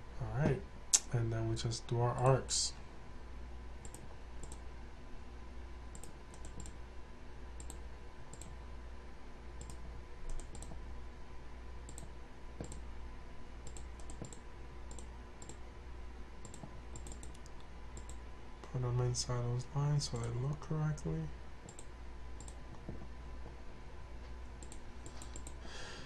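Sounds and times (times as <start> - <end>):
steady low hum: 0.0 - 26.0
computer mouse clicking: 3.8 - 4.6, 5.9 - 6.8, 7.6 - 8.6, 9.6 - 10.8, 11.9 - 12.8, 13.6 - 15.6, 16.4 - 18.2, 20.1 - 20.4, 21.6 - 23.1, 24.6 - 25.6.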